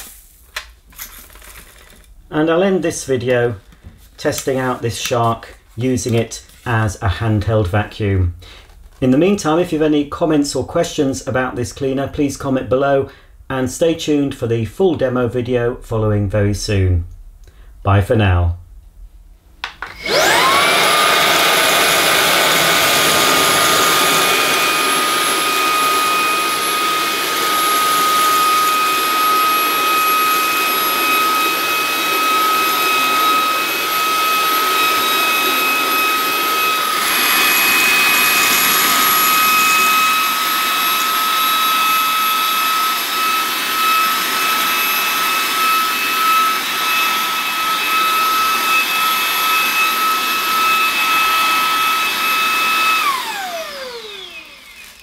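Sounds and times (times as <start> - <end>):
handheld vacuum whining: 19.6 - 55.0
vacuum sucking up grit: 20.0 - 55.0.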